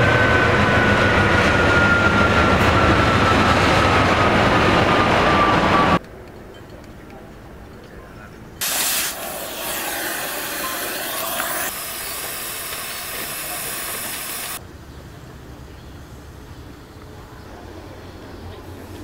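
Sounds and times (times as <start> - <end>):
cutting torch hissing: 8.6 - 14.6.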